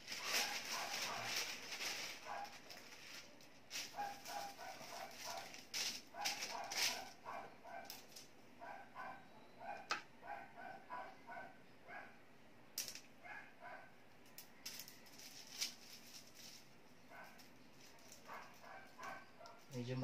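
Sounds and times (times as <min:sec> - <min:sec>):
paper rustling: 0:00.0 - 0:07.2.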